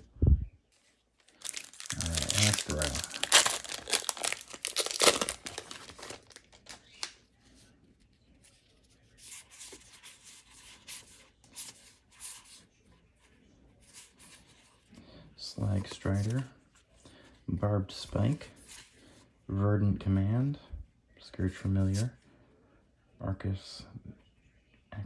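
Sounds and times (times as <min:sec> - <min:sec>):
foil wrapper tearing and crinkling: 0:01.3 - 0:07.1.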